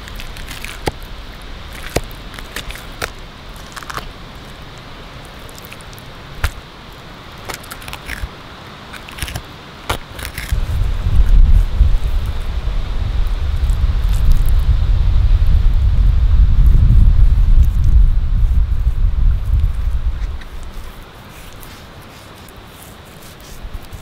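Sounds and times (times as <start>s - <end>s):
knife cutting and scraping fish: 0.0s - 1.1s, 7.4s - 8.3s, 8.9s - 10.8s, 19.6s - 24.0s
loud low rumble: 10.5s - 20.7s.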